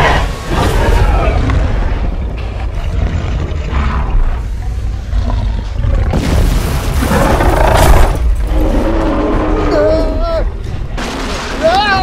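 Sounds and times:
dinosaur roar: 0:00.0 - 0:06.3, 0:07.0 - 0:10.4
deep rumble: 0:00.0 - 0:11.6.

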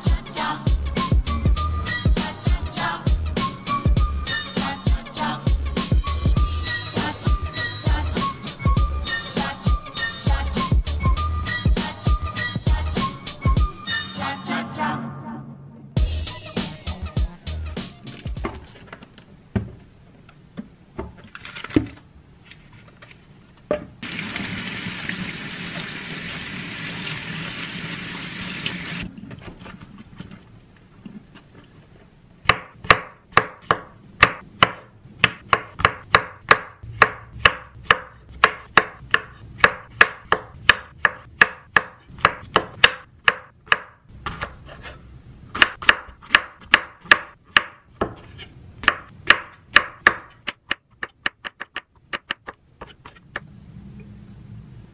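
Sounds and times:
knife chopping on wooden board: 0:32.4 - 0:53.2.

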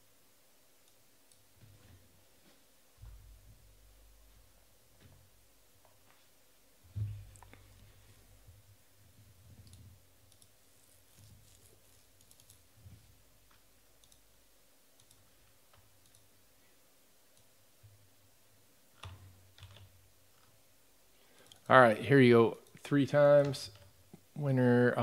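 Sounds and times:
faint clicks: 0:13.5 - 0:14.3, 0:15.0 - 0:16.3.

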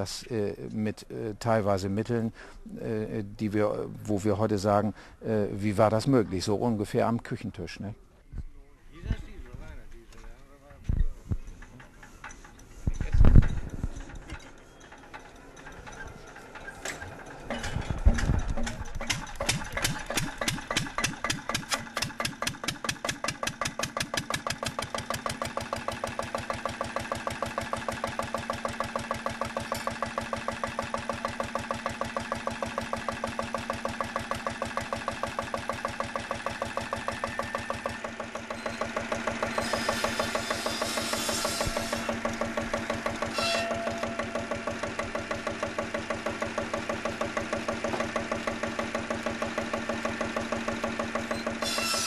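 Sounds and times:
stationary engine starting and running: 0:13.6 - 0:52.0.

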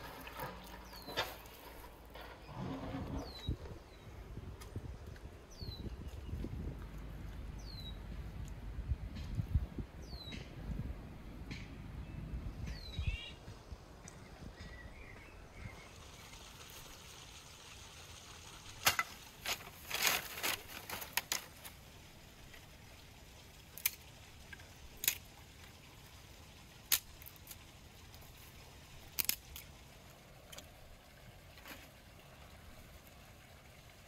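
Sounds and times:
twigs snapping and clattering: 0:18.8 - 0:21.8, 0:23.7 - 0:25.3, 0:26.8 - 0:27.6, 0:29.1 - 0:29.7.

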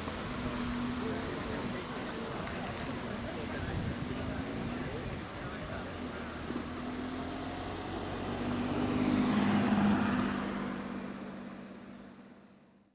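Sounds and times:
car driving past: 0:05.8 - 0:12.2.

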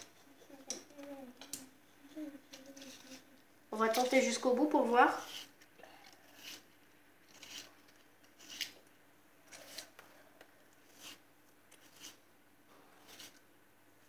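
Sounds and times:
vegetable slicer cutting scrapes: 0:05.2 - 0:05.6, 0:06.3 - 0:06.7, 0:07.3 - 0:07.7, 0:08.4 - 0:08.8, 0:11.8 - 0:12.2, 0:13.0 - 0:13.4.

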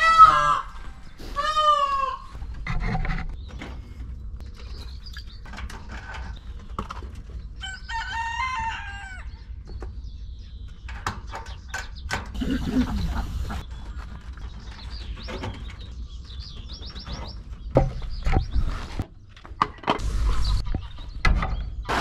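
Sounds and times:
rooster crowing: 0:07.7 - 0:09.3.

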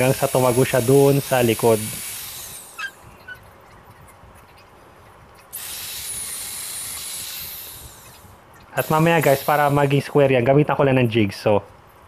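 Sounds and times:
electric drill boring wood: 0:00.0 - 0:02.9, 0:05.6 - 0:10.0.

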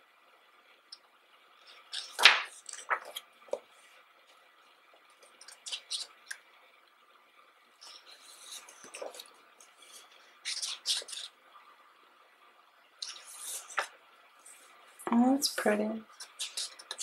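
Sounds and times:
paper rustling and ticks: 0:01.7 - 0:03.6, 0:07.8 - 0:09.8, 0:13.0 - 0:14.0, 0:16.2 - 0:17.0
book pages turning: 0:01.7 - 0:03.7, 0:07.8 - 0:11.3, 0:13.0 - 0:14.0.

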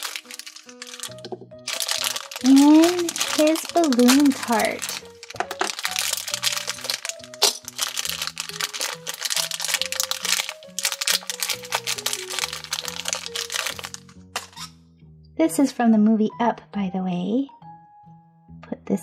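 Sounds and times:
background music stepping tune: 0:00.0 - 0:04.0, 0:04.9 - 0:14.7
plastic bag crinkling: 0:00.0 - 0:14.7.

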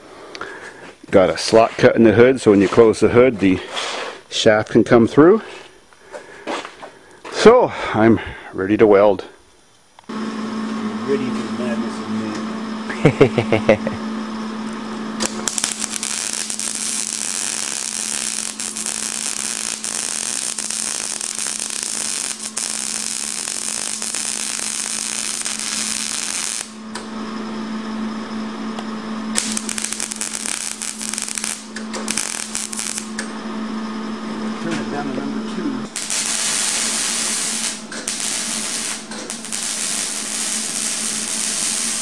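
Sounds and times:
steady low hum: 0:00.0 - 0:42.0
arc welding crackling sizzle: 0:14.6 - 0:27.1, 0:28.8 - 0:33.4, 0:35.9 - 0:42.0.

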